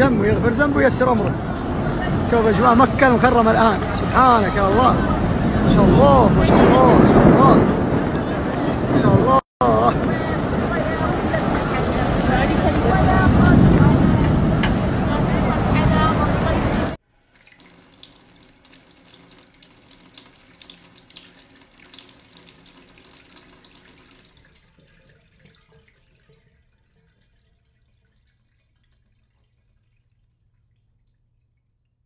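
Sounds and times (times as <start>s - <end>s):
rain falling: 10.5s - 29.0s.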